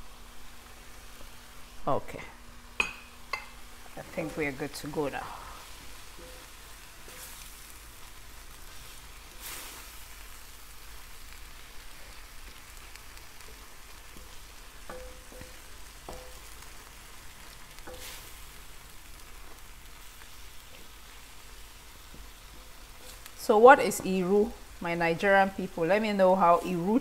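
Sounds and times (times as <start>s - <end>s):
stew sizzling and bubbling: 0.0s - 27.0s
spoon knocking against pan: 14.9s - 16.4s.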